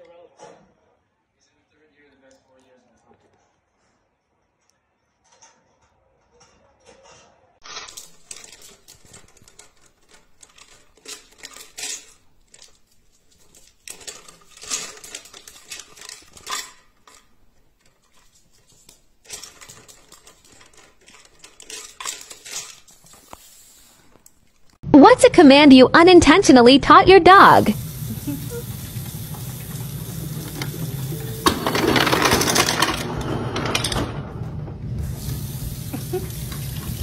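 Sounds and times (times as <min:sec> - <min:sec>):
treats rattling in plastic bottle: 0:07.9 - 0:23.5.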